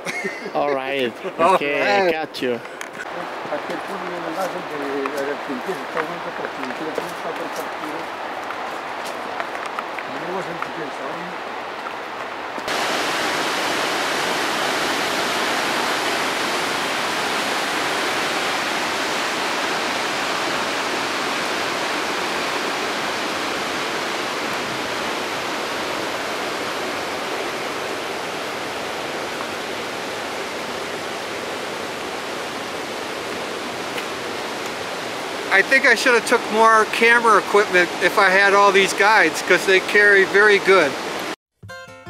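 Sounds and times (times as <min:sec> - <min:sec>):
waterfall rushing: 0:03.0 - 0:41.4.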